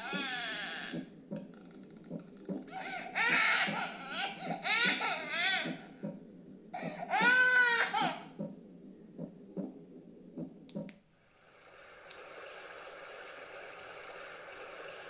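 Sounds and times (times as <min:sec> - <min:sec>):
white noise hiss from speaker: 0:00.0 - 0:15.0
sharp clicks: 0:10.4 - 0:11.1.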